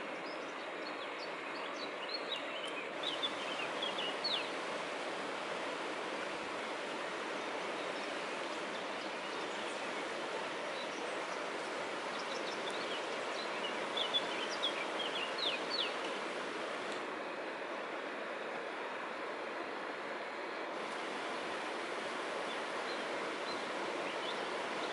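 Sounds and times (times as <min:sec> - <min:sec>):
bird chirping: 0:01.8 - 0:04.6, 0:12.1 - 0:16.3
river rushing: 0:02.9 - 0:24.9.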